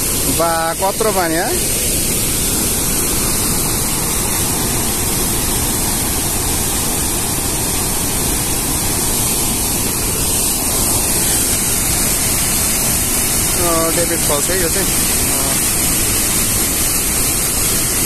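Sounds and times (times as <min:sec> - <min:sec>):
waterfall rushing: 0:00.0 - 0:18.0.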